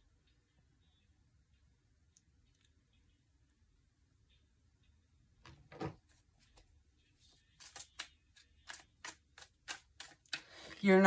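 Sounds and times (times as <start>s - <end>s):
cards shuffling: 5.8s - 11.0s.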